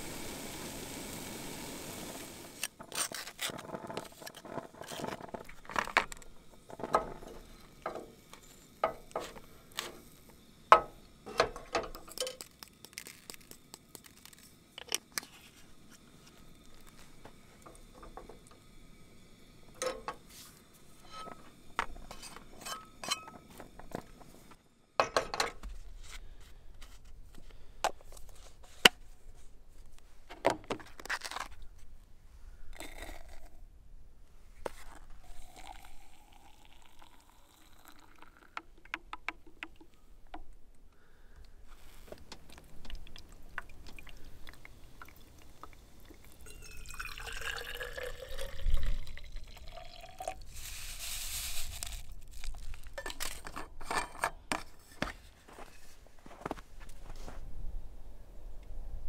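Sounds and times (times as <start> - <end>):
cookware and utensils clinking: 10.7 - 12.5, 19.7 - 20.3, 20.9 - 24.2, 25.0 - 25.6, 46.4 - 48.5, 53.0 - 54.7.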